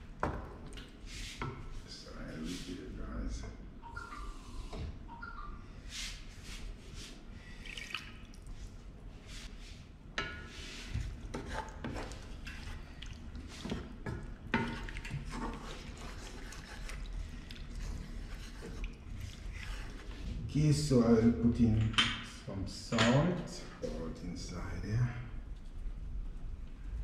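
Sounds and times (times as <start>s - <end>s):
spoon stirring sauce sloshing: 10.5s - 20.4s.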